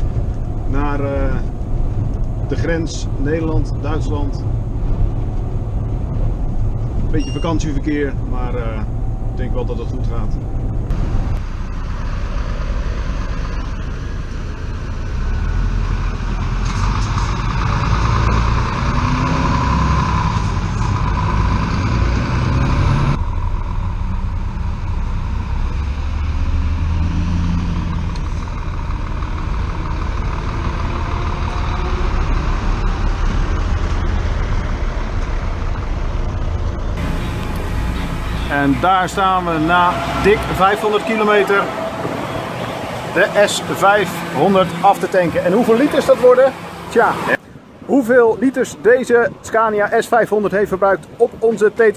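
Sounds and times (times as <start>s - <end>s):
diesel truck engine running: 8.0s - 47.4s.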